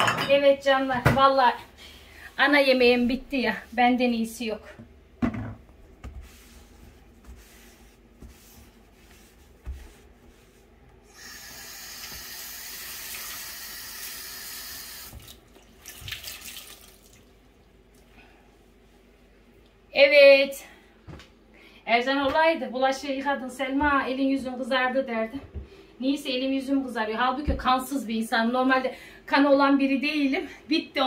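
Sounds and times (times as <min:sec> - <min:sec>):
tap water running into sink: 0:11.2 - 0:17.3
hands splashing in soapy water: 0:15.2 - 0:17.2.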